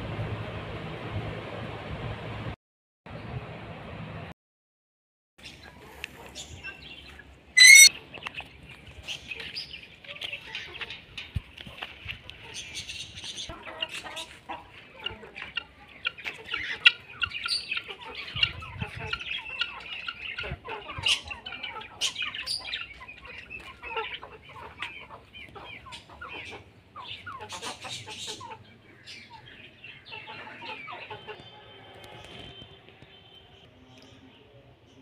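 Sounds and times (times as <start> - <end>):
hens clucking: 7.6 - 8.2, 9.4 - 31.7.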